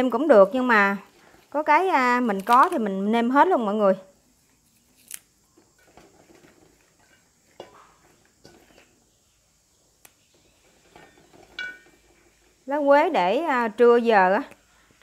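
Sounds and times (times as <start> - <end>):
herb stems rustling and snapping: 2.2 - 2.9, 4.7 - 5.4.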